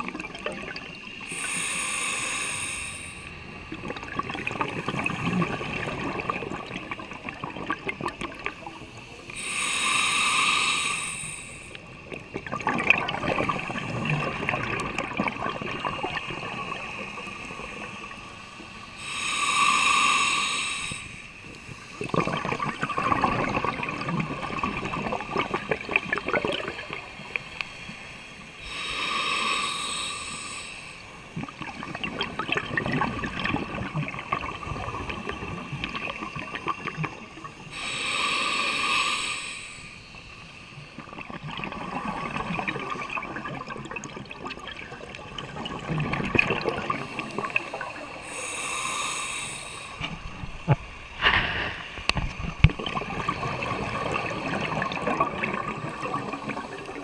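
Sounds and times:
exhaled bubbles gurgling: 0.0 - 27.7, 28.5 - 39.7, 40.7 - 57.0
regulator hissing inhalation: 1.2 - 3.5, 9.4 - 11.9, 16.8 - 22.0, 28.6 - 31.6, 37.6 - 40.6, 47.0 - 50.2.

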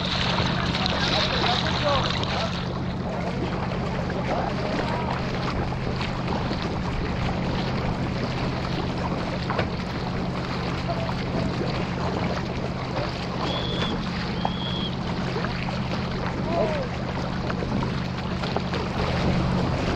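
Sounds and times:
water rushing and splashing: 0.0 - 19.9
high whistle: 13.4 - 15.0.

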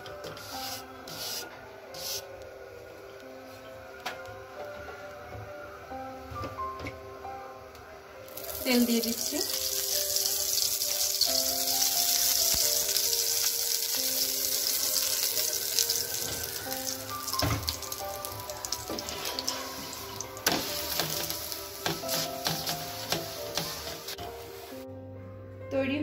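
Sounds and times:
background music: 0.0 - 26.0
oil sizzling on hot pan: 8.3 - 24.8.

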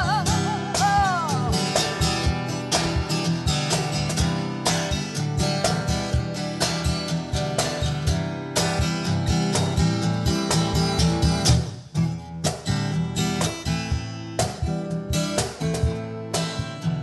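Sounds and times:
person singing: 0.0 - 2.0
cajon hand strikes: 0.0 - 16.9
acoustic guitar strumming: 0.0 - 17.0.

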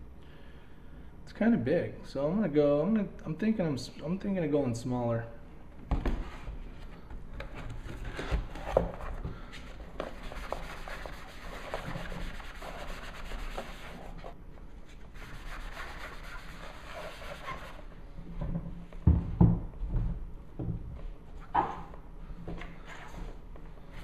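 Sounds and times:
sponge scrubbing cardboard: 10.0 - 14.3, 15.2 - 17.8.

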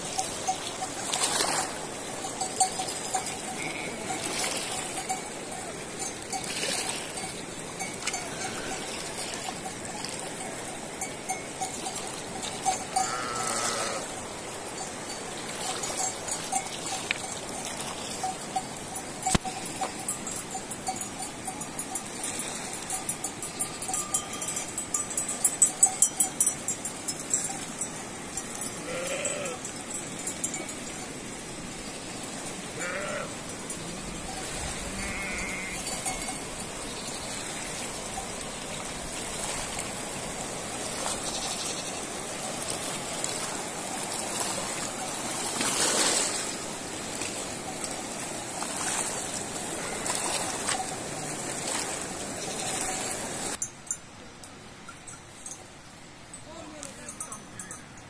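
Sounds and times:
river rushing: 0.0 - 57.7
animal bells clanking: 0.0 - 58.0
sheep bleating: 3.6 - 4.1, 13.0 - 14.1, 28.8 - 29.6, 32.8 - 33.4, 34.9 - 35.8.

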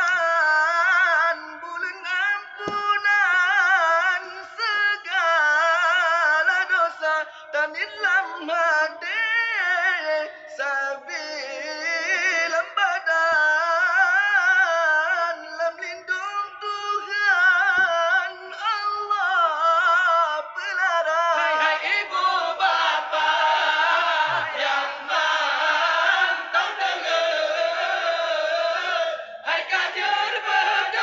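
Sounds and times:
group of men singing: 0.0 - 16.1, 20.4 - 31.0
man singing into a microphone: 0.0 - 22.2.

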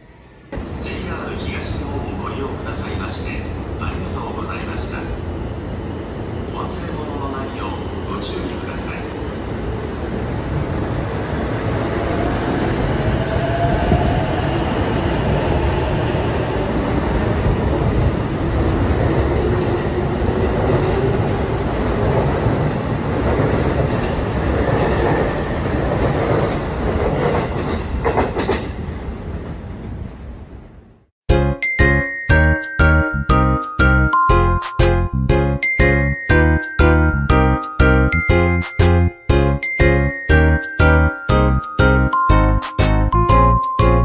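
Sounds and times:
train wheel-on-rail rumble: 0.0 - 31.0.

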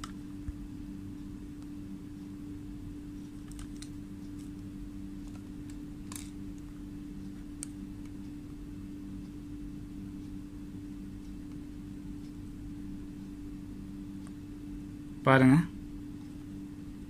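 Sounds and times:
steady low hum: 0.0 - 17.0
test probes clicking and tapping: 3.2 - 8.6.

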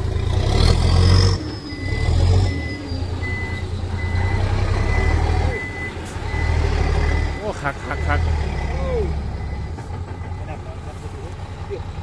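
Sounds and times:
reverse alarm beeping: 1.2 - 10.6
diesel truck engine idling: 1.4 - 12.0.

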